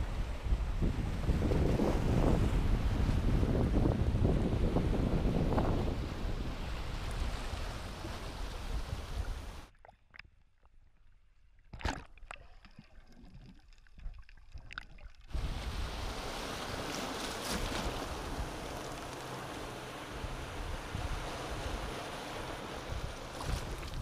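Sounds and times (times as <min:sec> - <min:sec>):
underwater clicks and bubbling: 0:09.7 - 0:15.3
sea waves washing over rocks: 0:15.3 - 0:24.0.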